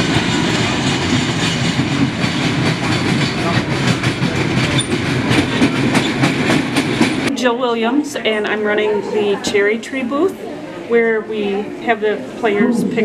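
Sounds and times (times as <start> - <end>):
wheels clattering on rails: 0.0 - 7.3.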